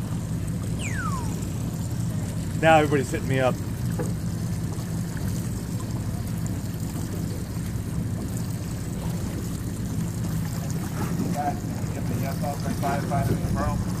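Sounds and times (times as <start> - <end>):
boat engine humming: 0.0 - 14.0
water splashing against hull: 0.0 - 14.0.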